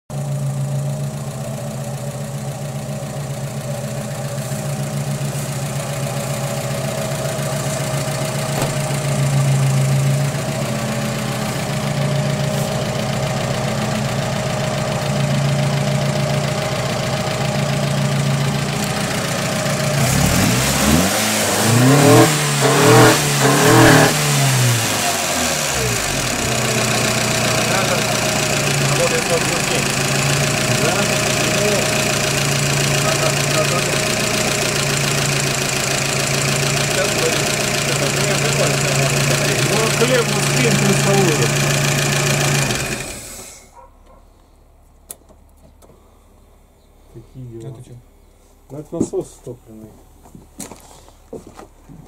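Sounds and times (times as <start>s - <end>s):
van engine idling and revving: 0.0s - 44.8s.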